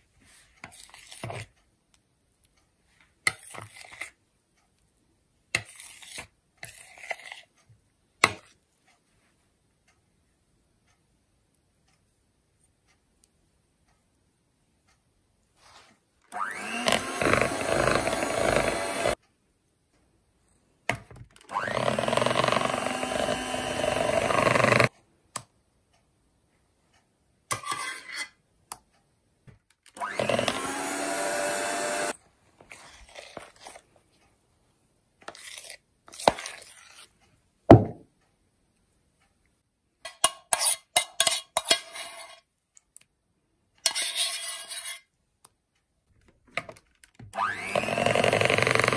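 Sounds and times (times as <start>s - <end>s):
electric hand mixer whirring: 16.3s - 19.2s, 21.5s - 24.9s, 30.0s - 32.2s, 47.4s - 48.9s.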